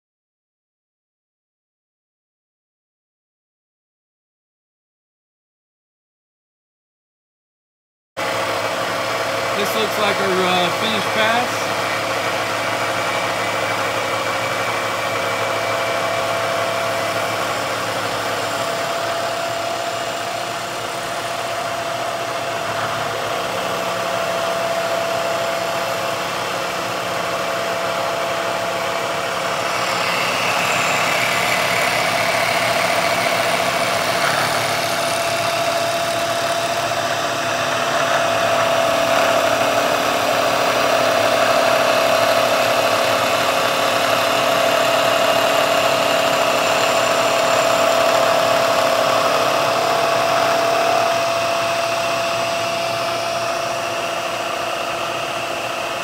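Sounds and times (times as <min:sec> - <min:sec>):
milling machine humming and whining: 0:08.2 - 0:56.0
higher whine: 0:45.3 - 0:55.9.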